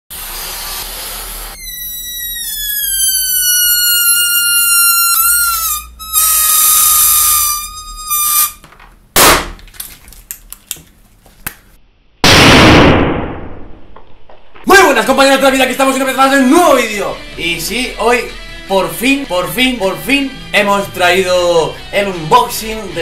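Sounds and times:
air squealing from balloon neck: 0.2 - 8.6
loud bang: 12.2 - 14.9.

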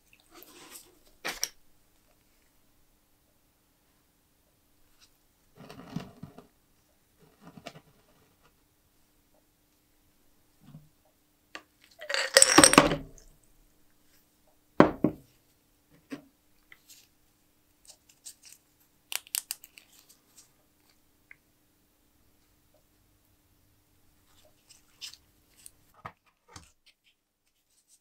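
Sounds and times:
glass jar knocking on wood: 12.1 - 13.1
gloved hands clicking and rustling: 17.8 - 21.0.

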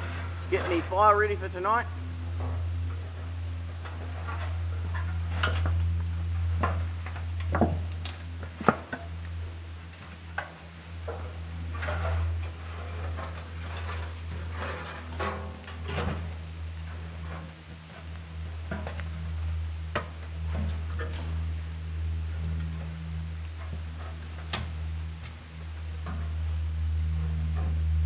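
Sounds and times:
corrugated iron clanking and scraping: 0.0 - 1.8, 2.4 - 9.1, 10.3 - 18.0, 19.9 - 21.4
steady low hum: 0.0 - 28.0.

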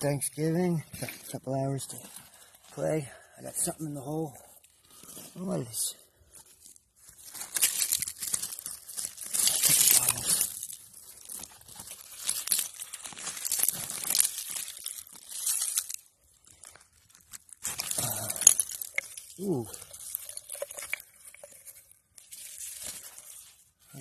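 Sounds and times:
hands digging through dirt: 6.5 - 24.0.

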